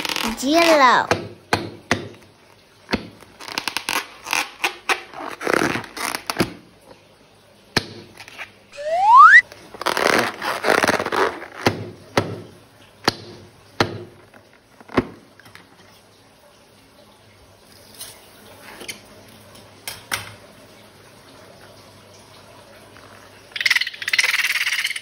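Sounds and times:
short rising squeak: 8.8 - 9.4.

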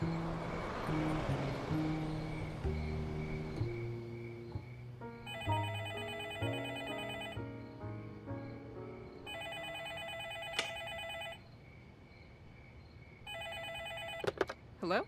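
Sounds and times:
landline telephone ringing: 5.3 - 7.4, 9.3 - 11.4, 13.3 - 14.4.

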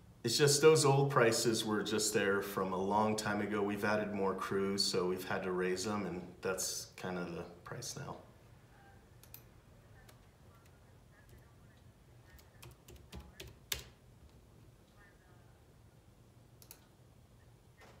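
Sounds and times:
computer keyboard keystrokes: 12.3 - 14.0.

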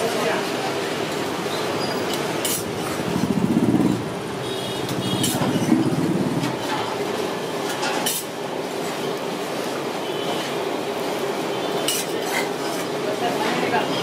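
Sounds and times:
engine pulsing rumble: 2.7 - 6.8
metal spatula clinking on griddle: 11.8 - 12.9.

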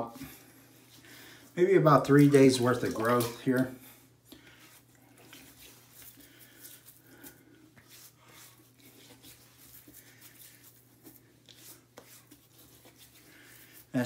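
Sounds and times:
hands rubbing beard stubble: 4.2 - 14.0.

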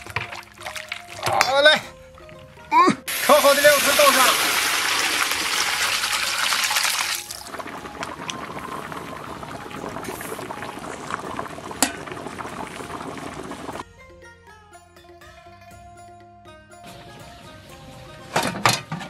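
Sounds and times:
sauce splashing into pot: 0.0 - 1.5, 3.1 - 13.8
soft music: 0.0 - 4.4, 5.0 - 19.0
stew bubbling: 0.0 - 13.8.

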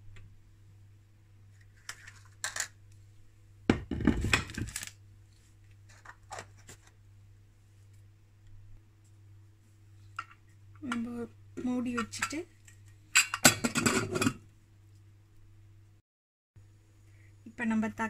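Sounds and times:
faint steady hum: 0.0 - 16.0, 16.6 - 18.0
metal kitchenware clattering: 13.2 - 14.4.

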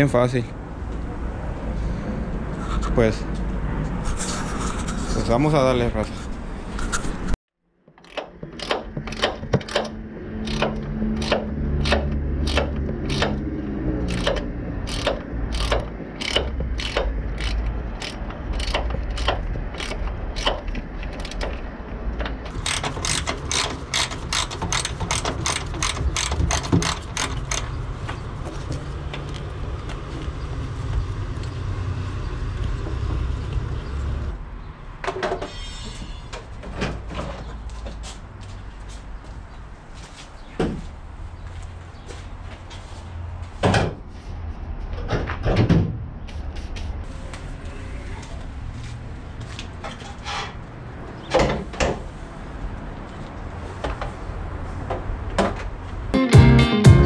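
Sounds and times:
ratchet wrench clicking: 8.0 - 13.4, 14.0 - 21.6, 22.5 - 27.7.

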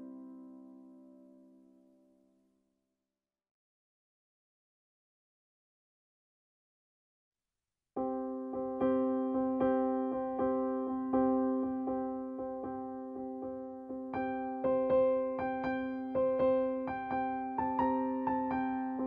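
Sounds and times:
piano-like keyboard music: 8.0 - 19.0.

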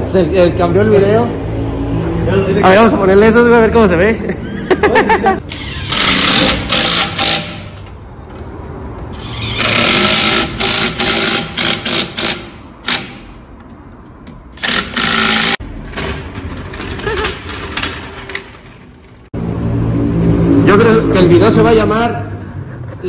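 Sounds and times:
impact wrench hammering lug nuts: 5.5 - 7.8, 9.2 - 13.4, 14.6 - 15.6.

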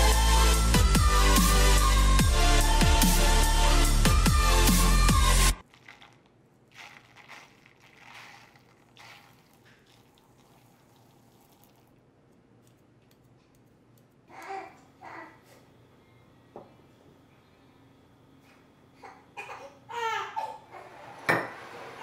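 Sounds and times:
electronic music: 0.0 - 5.6.

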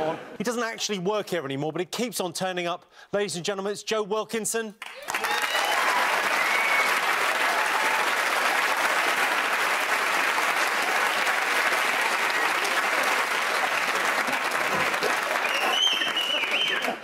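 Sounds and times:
audience applauding: 4.8 - 17.0.

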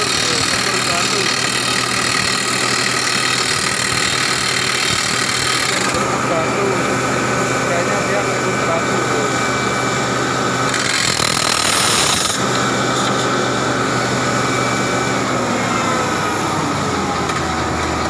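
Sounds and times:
rock drill percussive chatter: 0.0 - 9.9, 10.6 - 13.3
engine running: 0.0 - 18.0.

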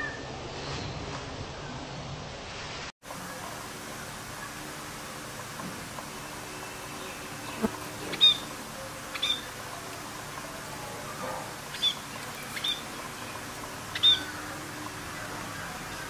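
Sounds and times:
steady hiss: 2.2 - 16.0
budgerigars chirping: 7.0 - 8.5, 9.1 - 9.5, 11.7 - 14.5.

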